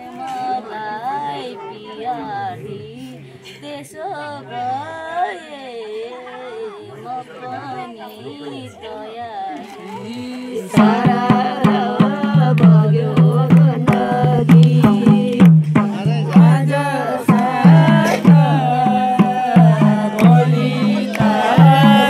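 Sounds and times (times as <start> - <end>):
person singing folk melody: 0.0 - 22.0
hand drum beat: 10.7 - 22.0.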